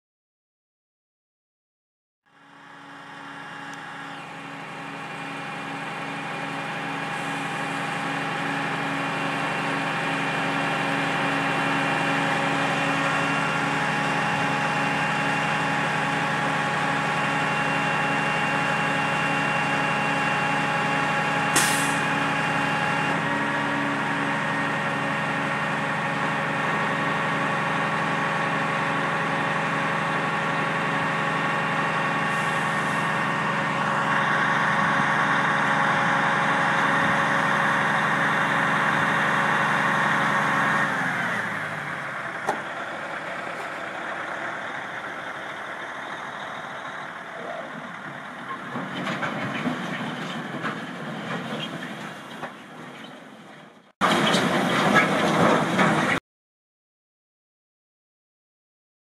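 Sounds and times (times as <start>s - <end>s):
diesel truck engine running: 2.4s - 56.2s
sharp hiss of air: 21.6s - 22.0s.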